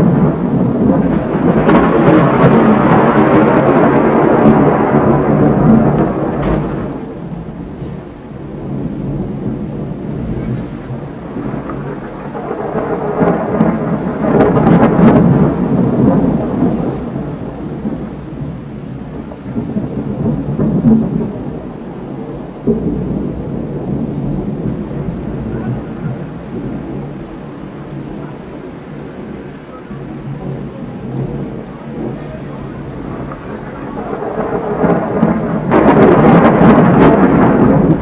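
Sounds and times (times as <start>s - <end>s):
sharp thunder cracks: 0.0s - 38.0s
thunder rumbling: 0.0s - 38.0s.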